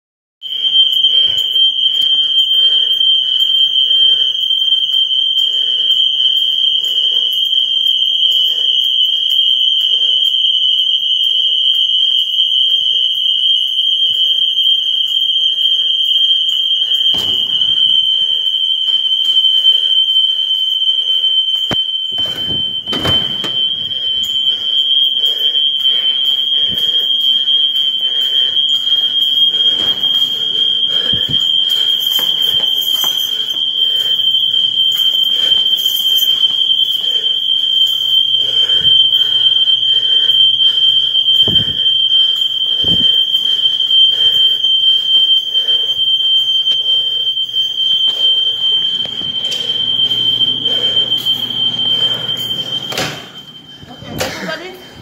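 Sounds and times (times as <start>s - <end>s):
fire alarm high-pitched tone: 0.4s - 55.0s
footsteps on hard floor: 49.0s - 53.4s.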